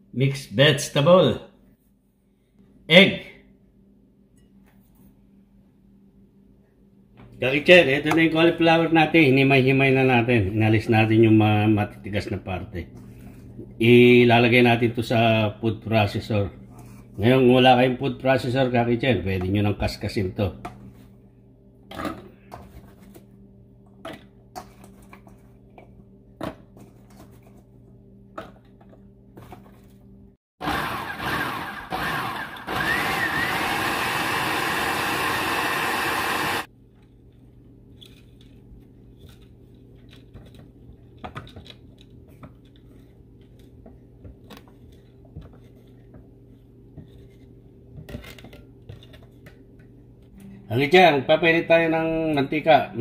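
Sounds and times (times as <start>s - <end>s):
food processor chopping: 30.6s - 36.7s.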